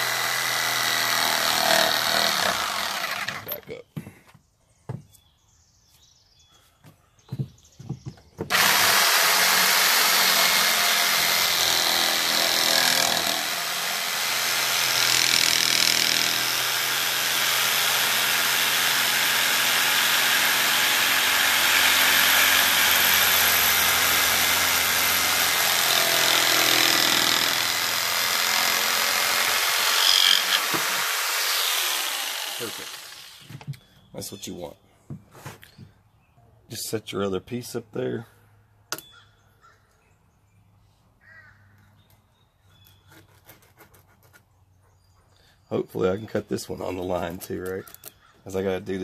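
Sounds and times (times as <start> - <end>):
jigsaw cutting wood: 0.0 - 3.6, 8.5 - 33.7.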